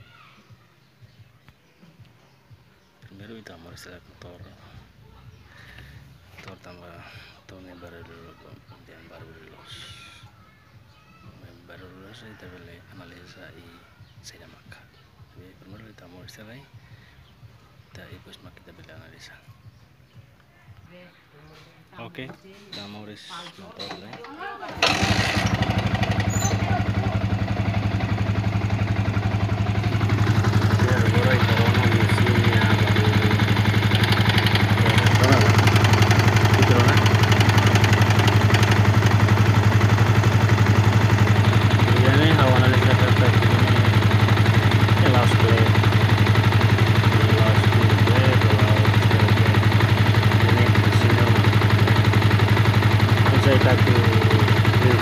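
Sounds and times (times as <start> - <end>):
motorcycle engine idling: 23.8 - 55.0.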